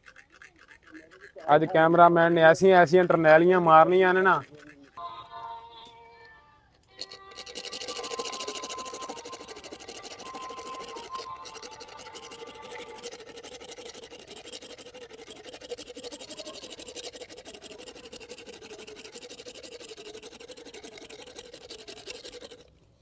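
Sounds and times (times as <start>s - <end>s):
rasp scraping teeth: 0.0s - 5.0s, 6.9s - 22.8s.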